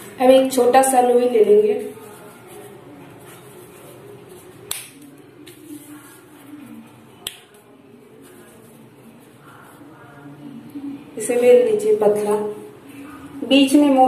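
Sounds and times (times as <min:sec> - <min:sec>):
hands shaping dough: 0:00.0 - 0:10.4.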